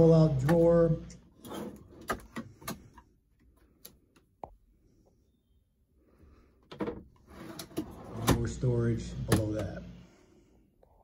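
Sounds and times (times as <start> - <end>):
drawer sliding open with clicks: 6.7 - 9.8.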